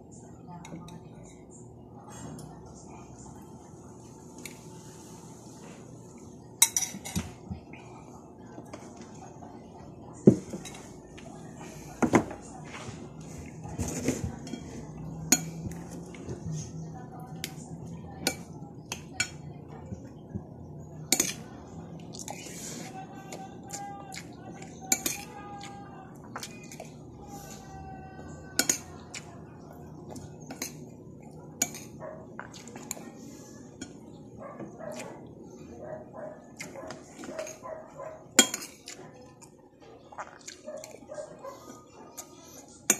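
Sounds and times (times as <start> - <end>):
metal spoon clinking against bowl: 38.4 - 38.9.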